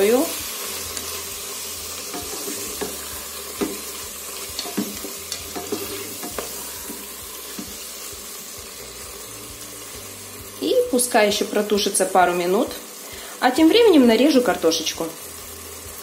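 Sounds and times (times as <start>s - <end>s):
food sizzling: 0.0s - 16.0s
spatula scraping and tapping bowl: 4.6s - 7.8s.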